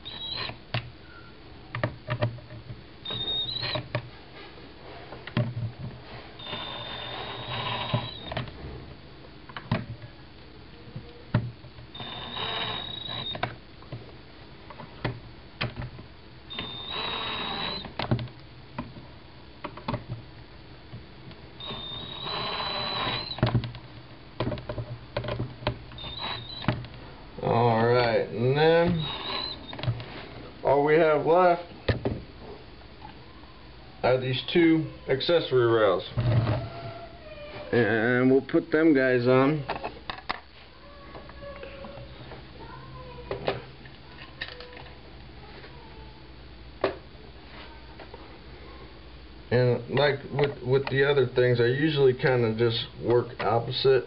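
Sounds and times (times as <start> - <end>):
drill driver motor whining: 0.0 - 0.6, 3.0 - 4.0, 6.4 - 8.5, 11.9 - 13.6, 16.5 - 18.2, 21.6 - 23.7, 25.9 - 26.8, 28.6 - 30.0.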